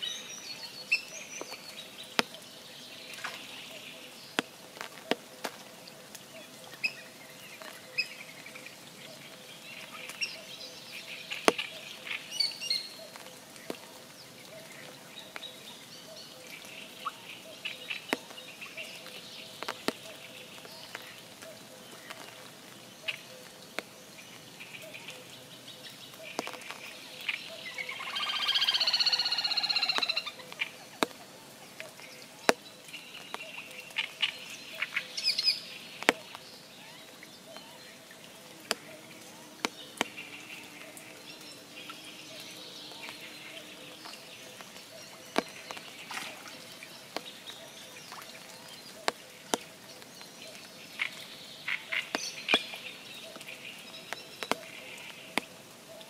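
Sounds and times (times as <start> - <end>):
rain drops tapping: 0.0 - 56.0.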